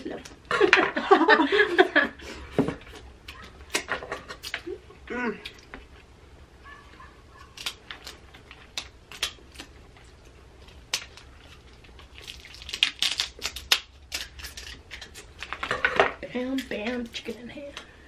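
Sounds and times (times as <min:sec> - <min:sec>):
crab shell cracking and snipping: 0:07.4 - 0:09.8, 0:10.6 - 0:15.7.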